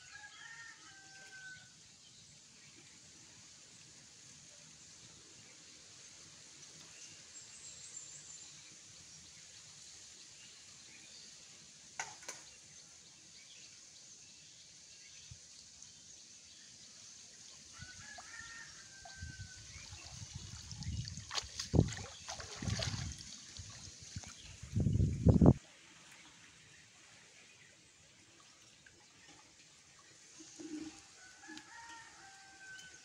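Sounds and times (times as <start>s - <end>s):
faint outdoor hiss: 0.0s - 33.0s
water splashing off net: 19.8s - 24.4s.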